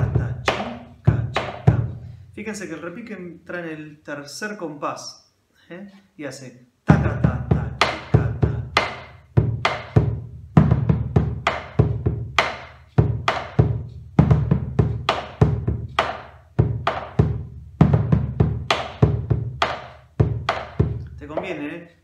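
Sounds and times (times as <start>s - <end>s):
deep drum strikes: 0.0s - 2.0s, 6.9s - 21.6s.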